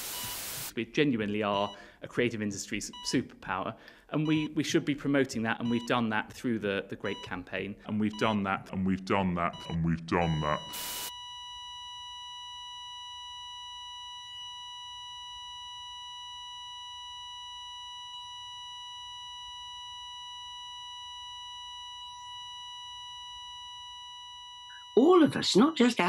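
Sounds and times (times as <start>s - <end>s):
steady high electronic tone: 9.4s - 11.2s.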